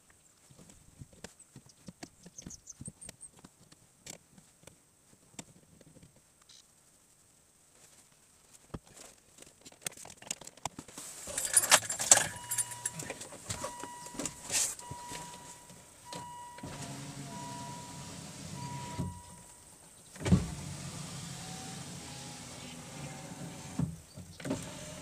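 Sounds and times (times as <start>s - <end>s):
electronic beeps: 12.3s - 16.7s
power window motor running: 16.1s - 19.4s, 20.2s - 25.0s.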